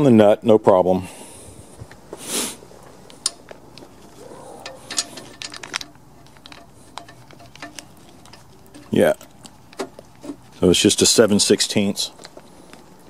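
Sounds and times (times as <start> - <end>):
metal hardware clicking: 4.5 - 10.0.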